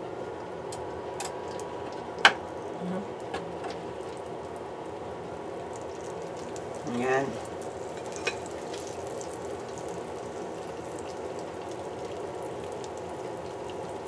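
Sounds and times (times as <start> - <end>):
fish sizzling in oil: 3.8 - 14.0.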